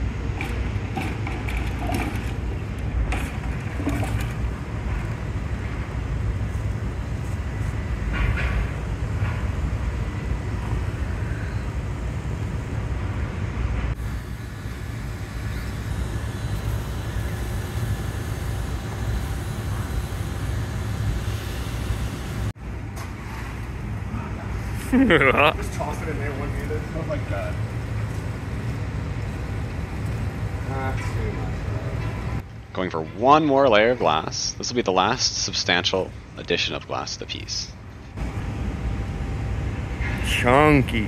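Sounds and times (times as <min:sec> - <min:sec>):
furnace burners and fans roaring: 0:00.0 - 0:41.0.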